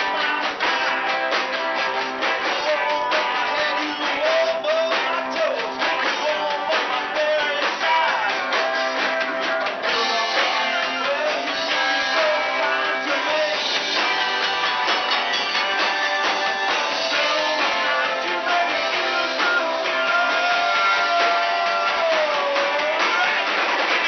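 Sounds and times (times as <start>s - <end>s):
singer on microphone: 0.0s - 0.6s, 2.4s - 8.8s, 9.8s - 13.9s, 17.0s - 23.7s
electric guitars strummed: 0.0s - 24.0s
steady drum beat: 0.0s - 24.0s.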